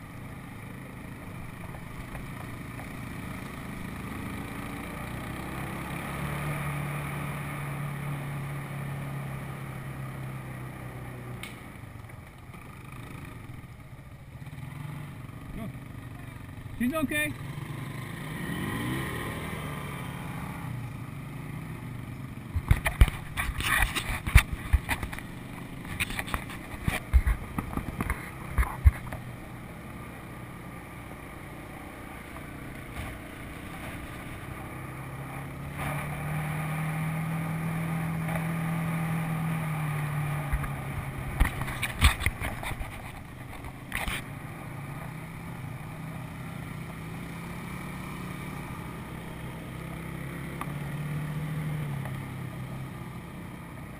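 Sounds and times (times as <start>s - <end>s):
atv engine running: 0.0s - 53.9s
knocks and rattles over rough ground: 22.5s - 29.4s, 32.2s - 35.0s, 38.0s - 45.0s.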